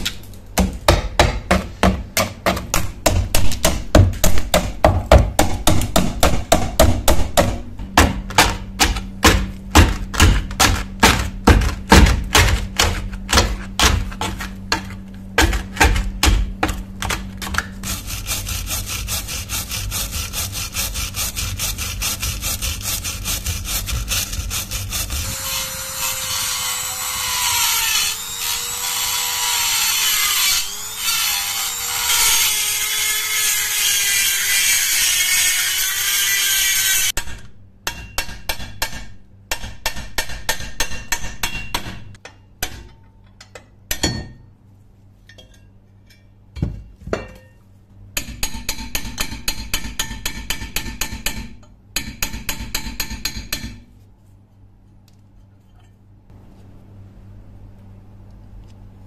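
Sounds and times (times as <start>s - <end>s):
wire brush scrubbing rusted metal: 17.7s - 27.9s.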